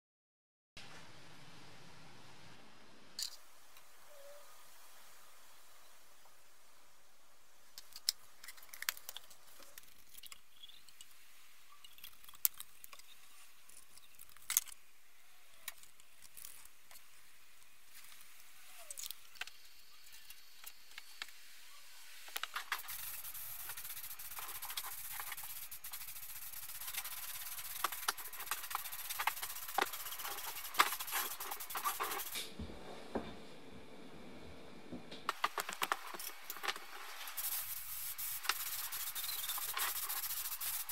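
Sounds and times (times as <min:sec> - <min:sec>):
steady hiss: 0:02.0 - 0:40.9
gloved hands rubbing: 0:22.4 - 0:32.5, 0:35.3 - 0:40.9.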